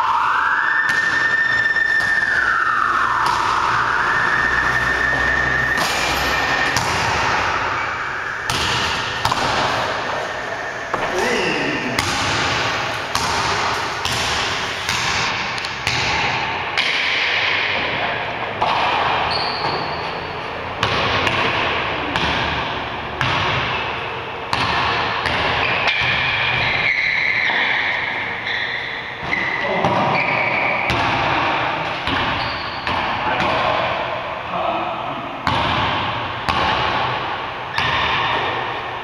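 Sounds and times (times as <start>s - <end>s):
basketball bouncing on wooden floor: 6.6s - 7.4s, 8.5s - 9.8s, 12.0s - 17.0s.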